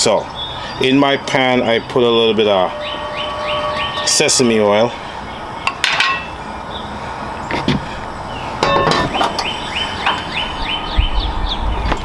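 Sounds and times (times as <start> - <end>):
bird chirping: 0.0 - 7.5, 8.3 - 12.0
gas burner hissing: 9.2 - 10.3.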